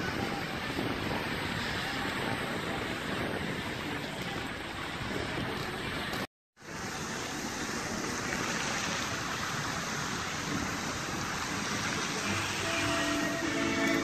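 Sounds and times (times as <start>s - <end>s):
fountain water jets rushing: 0.0s - 14.0s.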